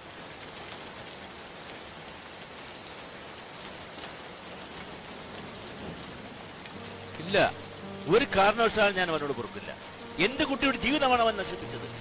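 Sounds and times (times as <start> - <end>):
steady rain: 0.0 - 12.0
raindrop ticks: 3.4 - 9.2.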